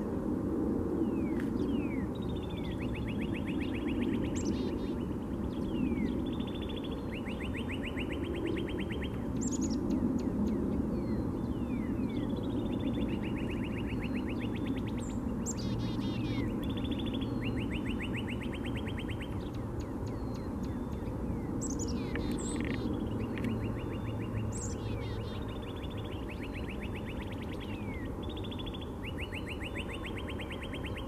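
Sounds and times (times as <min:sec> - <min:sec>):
cardinal singing whistles and trills: 0:01.0 - 0:31.0.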